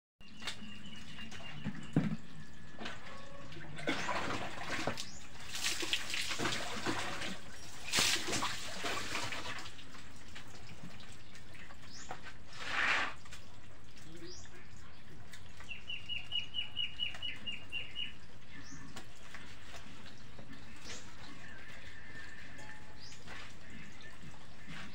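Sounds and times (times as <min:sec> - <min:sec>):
water splashing on body: 0:03.8 - 0:13.6.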